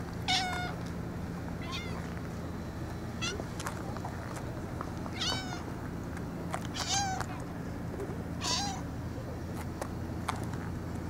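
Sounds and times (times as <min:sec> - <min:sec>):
cat meowing: 0:00.3 - 0:00.8, 0:01.6 - 0:02.0, 0:05.2 - 0:05.6, 0:06.8 - 0:07.2, 0:08.4 - 0:08.8.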